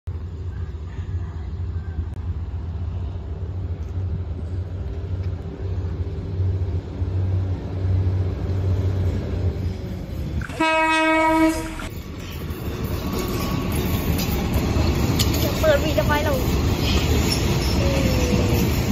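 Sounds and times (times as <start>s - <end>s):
diesel train engine rumble: 0.1s - 18.9s
train horn blast: 10.4s - 11.9s.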